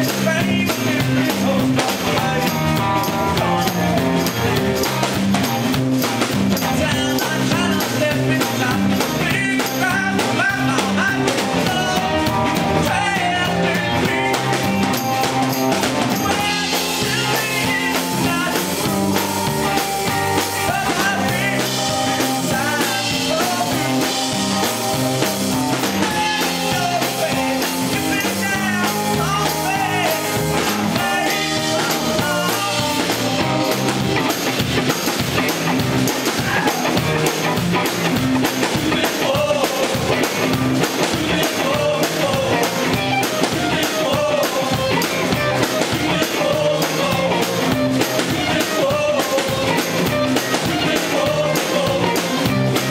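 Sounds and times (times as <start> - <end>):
man singing into microphone: 0.0 - 4.5, 6.6 - 14.6, 16.2 - 19.0, 20.6 - 24.1, 26.0 - 33.5, 38.7 - 40.3, 41.0 - 47.6, 48.2 - 49.9, 50.6 - 52.6
bass guitar: 0.0 - 52.9
drum kit: 0.0 - 52.9
electric guitar: 0.0 - 52.9.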